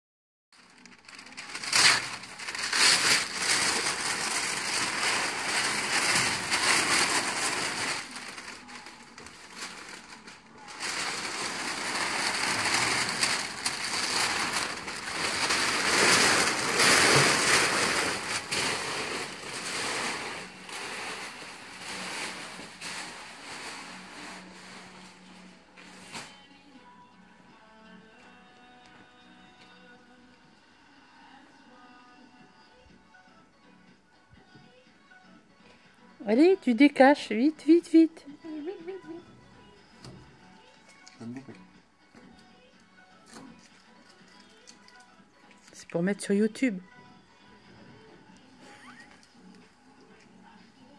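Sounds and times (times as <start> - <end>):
masking paper ripped and crumpled: 0.6 - 26.4.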